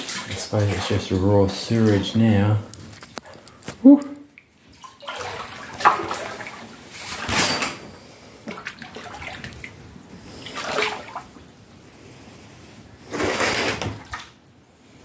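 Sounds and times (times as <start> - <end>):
person wading through water: 0.0 - 2.2, 4.3 - 7.0, 8.3 - 11.6.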